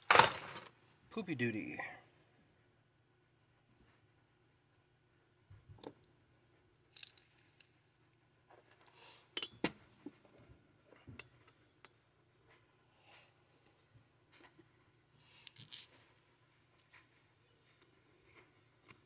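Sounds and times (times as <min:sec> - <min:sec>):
metal bolts clinking: 0:00.0 - 0:00.7, 0:06.9 - 0:07.8.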